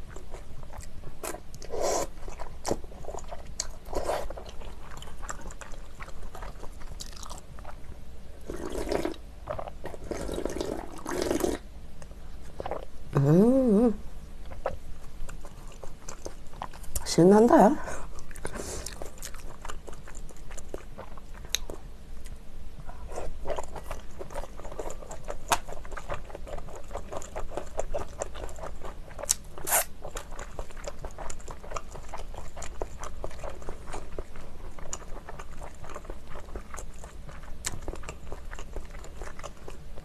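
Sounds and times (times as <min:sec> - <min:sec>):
chewing and wet mouth sounds: 0:00.0 - 0:12.9, 0:14.4 - 0:40.0.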